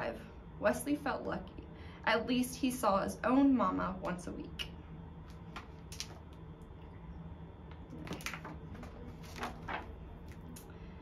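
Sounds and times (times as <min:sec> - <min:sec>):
low steady hum: 0:00.0 - 0:11.0
book pages rustling: 0:08.0 - 0:10.4.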